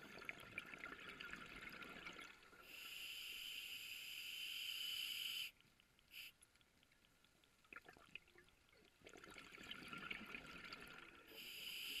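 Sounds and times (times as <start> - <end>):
regulator breathing hiss: 2.6 - 6.4, 11.3 - 12.0.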